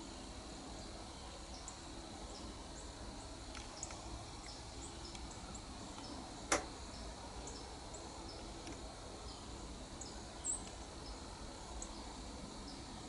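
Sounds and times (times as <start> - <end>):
sharp click: 6.5 - 6.7.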